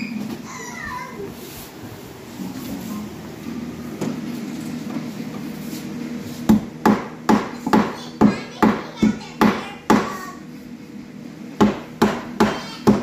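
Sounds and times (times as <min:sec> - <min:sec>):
hammer striking nail into wood: 0:06.5 - 0:08.0, 0:11.6 - 0:13.0.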